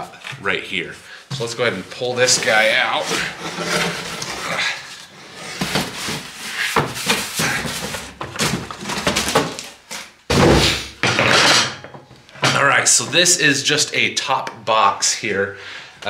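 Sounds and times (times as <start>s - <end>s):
cardboard packaging rustling: 1.4s - 10.2s
loud thump: 10.3s - 11.1s.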